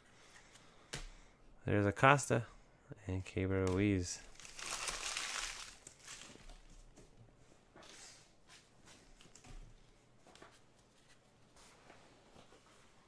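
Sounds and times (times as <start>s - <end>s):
trading cards rustling and clicking: 3.7s - 6.4s.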